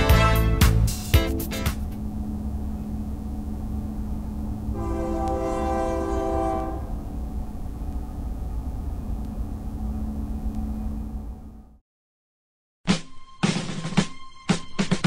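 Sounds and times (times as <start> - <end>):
locomotive air horn chord: 0.0 - 1.0, 4.7 - 7.2
low rumble of passing train: 0.0 - 11.8.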